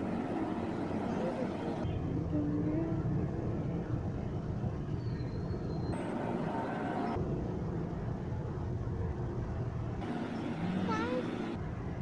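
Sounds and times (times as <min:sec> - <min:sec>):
road traffic rumble: 0:00.0 - 0:12.0.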